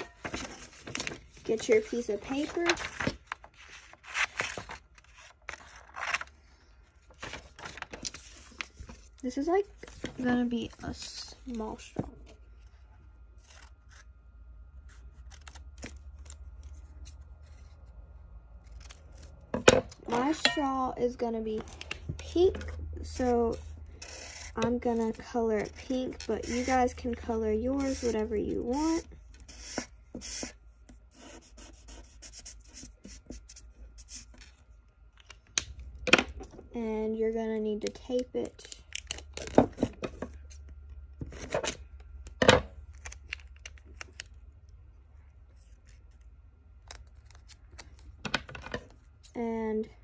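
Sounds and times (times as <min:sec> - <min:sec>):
scissors snipping paper: 0:26.2 - 0:29.0
marker scribbling on paper: 0:26.4 - 0:26.8, 0:27.8 - 0:30.5.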